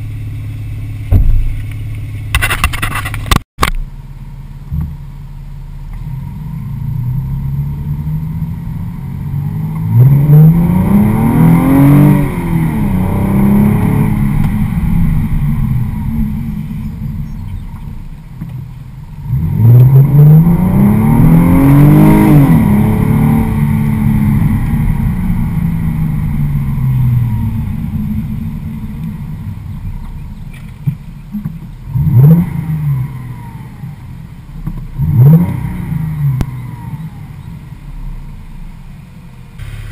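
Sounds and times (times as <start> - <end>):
car cruising drone: 0.0 - 39.9
car engine revving: 5.9 - 39.0.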